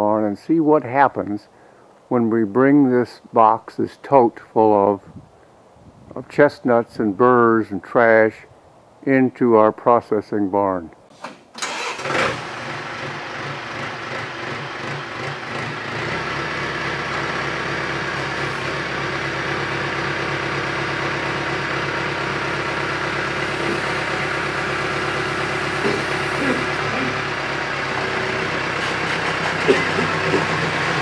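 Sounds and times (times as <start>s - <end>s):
tractor diesel engine running: 11.6s - 31.0s.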